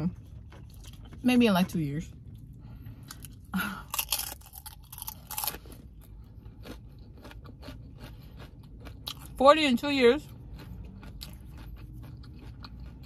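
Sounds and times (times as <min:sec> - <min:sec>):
person chewing crunchy food: 0:00.1 - 0:09.4, 0:10.1 - 0:13.0.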